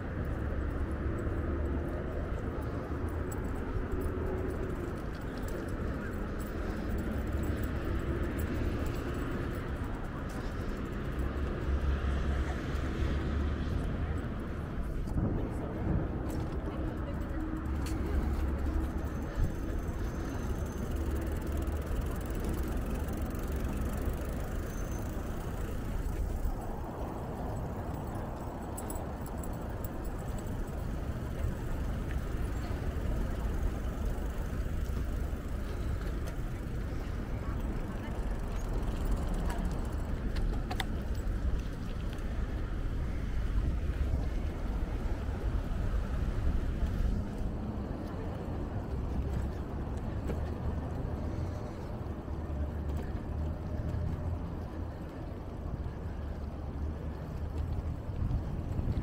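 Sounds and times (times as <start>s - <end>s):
bicycle rolling noise: 0.0s - 59.0s
city street traffic: 0.0s - 59.0s
wind rumble on microphone: 0.0s - 59.0s
wind on microphone: 57.5s - 59.0s.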